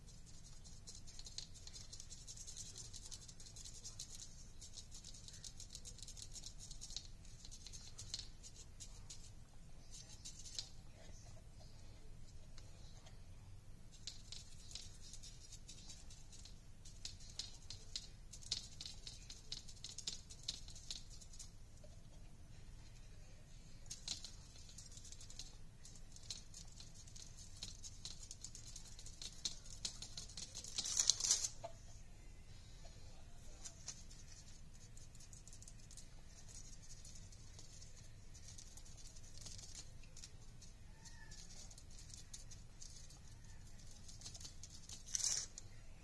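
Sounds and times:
foam brush dabbing: 0:00.0 - 0:13.2, 0:32.8 - 0:45.7.

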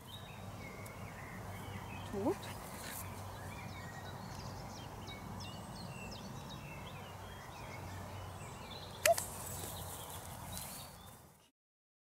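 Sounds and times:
small birds chirping: 0:00.0 - 0:11.5
sharp click: 0:09.0 - 0:09.3.

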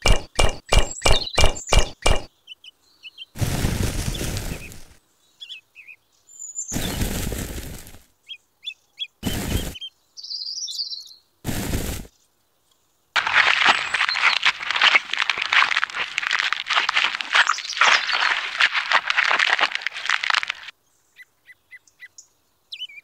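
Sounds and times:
small birds chirping: 0:00.0 - 0:07.5, 0:08.2 - 0:11.4, 0:12.1 - 0:23.0
sand pouring hiss: 0:03.4 - 0:05.0, 0:06.7 - 0:08.0, 0:09.2 - 0:09.8, 0:11.5 - 0:12.1, 0:13.2 - 0:20.7.

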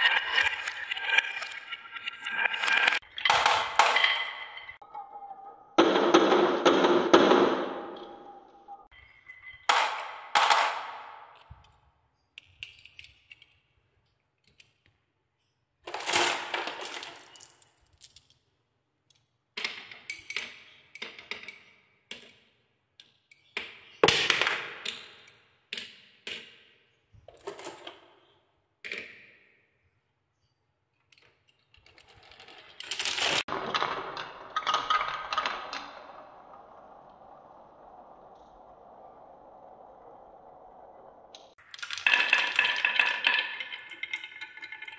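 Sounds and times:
balls rattling round wooden spiral: 0:00.0 - 0:04.9, 0:15.8 - 0:18.4, 0:31.7 - 0:44.9
marbles clacking down wooden tracks: 0:00.0 - 0:04.9, 0:05.8 - 0:11.7, 0:15.8 - 0:18.4, 0:31.7 - 0:44.9.

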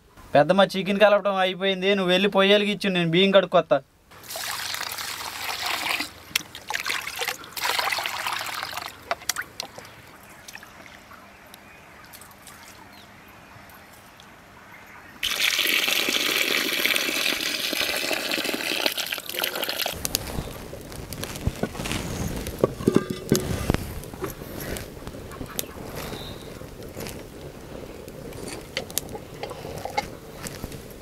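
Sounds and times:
water splashing into pot: 0:04.2 - 0:09.8, 0:15.2 - 0:20.0
water pouring off: 0:04.2 - 0:10.6, 0:15.2 - 0:20.6.

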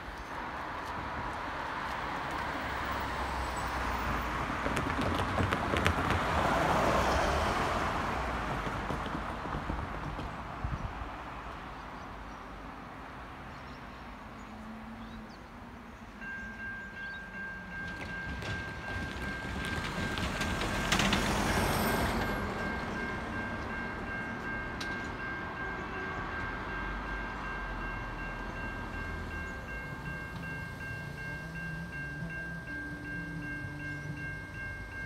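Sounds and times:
road vehicle passing: 0:00.4 - 0:35.0.

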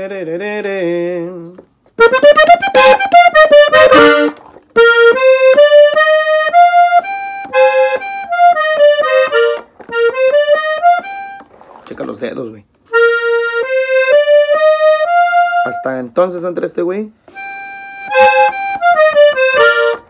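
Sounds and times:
button accordion melody: 0:01.9 - 0:11.8, 0:12.9 - 0:16.1, 0:17.2 - 0:20.0.

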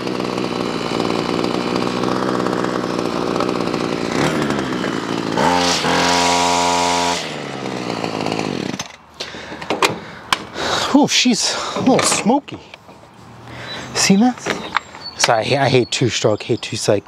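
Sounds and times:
string trimmer engine revving: 0:00.0 - 0:09.6.

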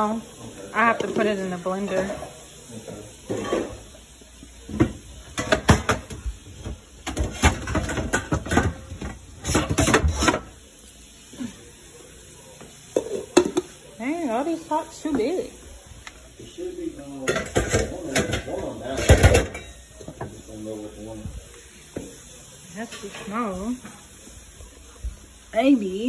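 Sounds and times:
pots and lids clanking: 0:00.8 - 0:10.6, 0:12.6 - 0:13.9, 0:17.0 - 0:20.5, 0:21.9 - 0:24.2.

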